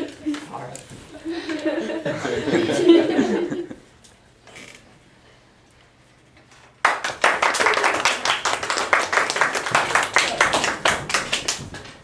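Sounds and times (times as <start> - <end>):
audience applause: 6.8 - 12.0.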